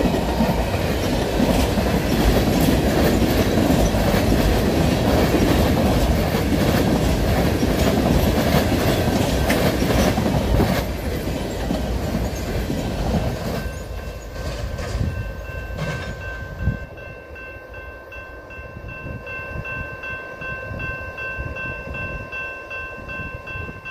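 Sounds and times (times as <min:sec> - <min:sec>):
freight train wheels clacking: 0:00.0 - 0:17.3.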